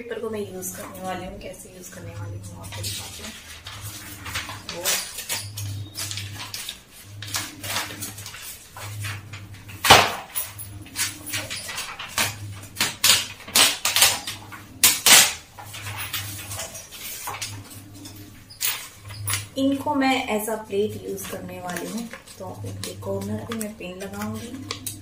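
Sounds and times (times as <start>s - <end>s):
low hum: 0.0s - 25.0s
magazine pages rustling and tearing: 2.7s - 18.0s, 20.8s - 25.0s.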